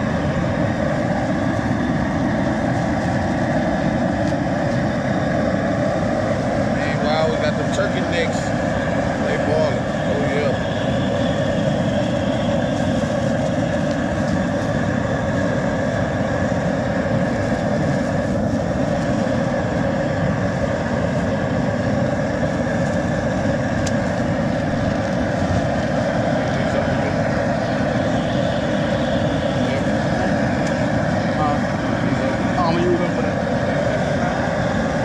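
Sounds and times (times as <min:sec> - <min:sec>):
steady roar with hum: 0:00.0 - 0:35.0.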